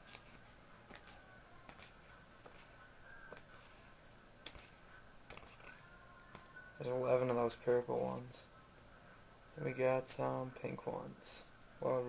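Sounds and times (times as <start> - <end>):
paper stickers rustling: 0.0 - 8.4.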